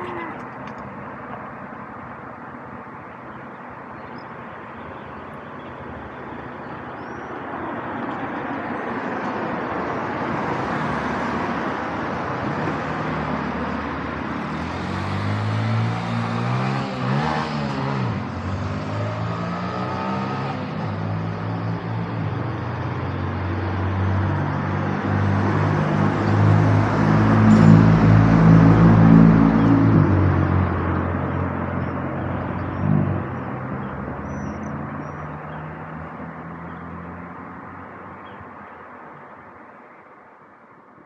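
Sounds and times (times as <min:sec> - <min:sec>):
passing cars: 0:00.0 - 0:41.0
vehicle engine passing close: 0:12.8 - 0:37.4.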